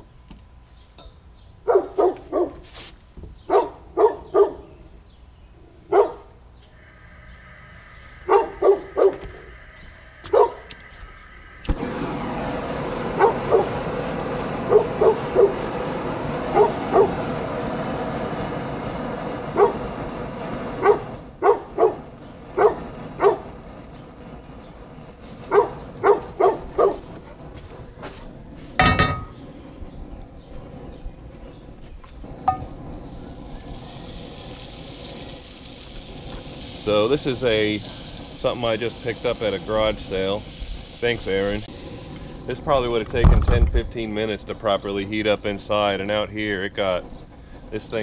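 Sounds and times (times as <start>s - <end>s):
dog barking: 1.6s - 2.6s, 3.5s - 4.7s, 5.9s - 6.3s, 8.3s - 9.2s, 10.3s - 10.7s, 13.2s - 13.7s, 14.6s - 15.6s, 16.5s - 17.2s, 19.6s - 19.8s, 20.8s - 22.0s, 22.6s - 23.5s, 25.5s - 27.1s
gas burner hissing: 6.6s - 48.0s
skillet clanking on grate: 28.8s - 29.4s.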